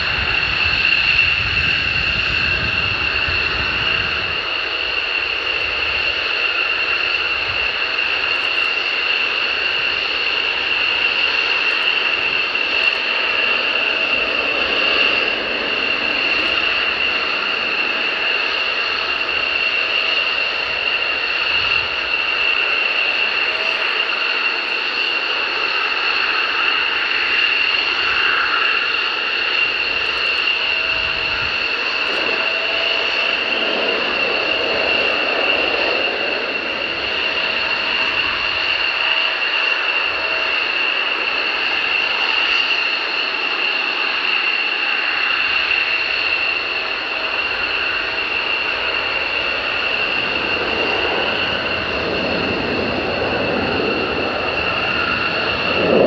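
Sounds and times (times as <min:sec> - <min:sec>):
jet engines whining: 0:00.0 - 0:56.0.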